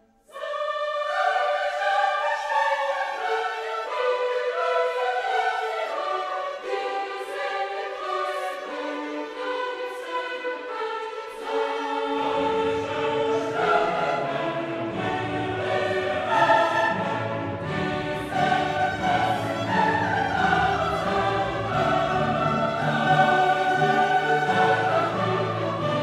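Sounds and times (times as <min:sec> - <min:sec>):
choir singing sustained chords: 0:00.0 - 0:26.0.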